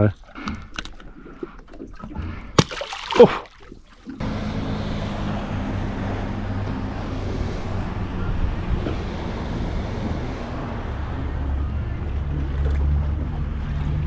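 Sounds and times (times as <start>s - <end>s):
water noise: 0.0s - 14.0s
wind: 0.0s - 14.0s
boat motor humming: 3.2s - 14.0s.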